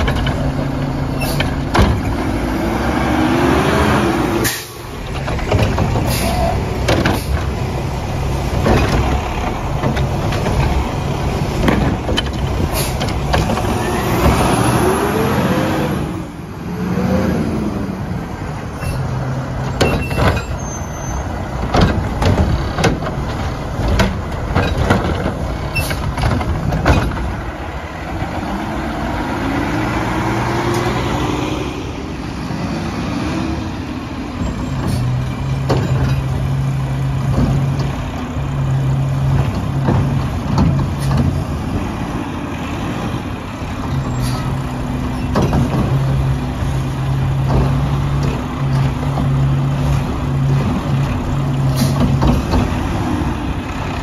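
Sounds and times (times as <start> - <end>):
metal clanks and knocks: 0.0 - 2.3, 5.0 - 7.7, 8.3 - 14.6, 19.6 - 27.6, 34.3 - 41.9, 43.8 - 53.3
truck engine revving: 0.0 - 54.0.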